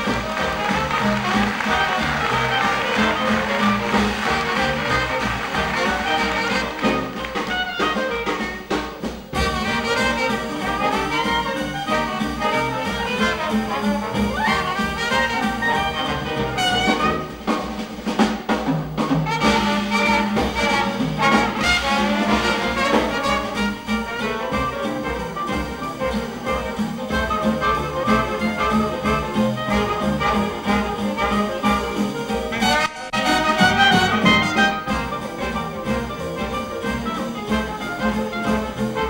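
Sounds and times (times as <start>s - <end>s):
string bass: 0.0s - 8.3s
trumpet and trombone: 0.0s - 18.0s, 19.1s - 39.0s
drums: 0.0s - 39.0s
jazz band playing: 0.0s - 39.0s.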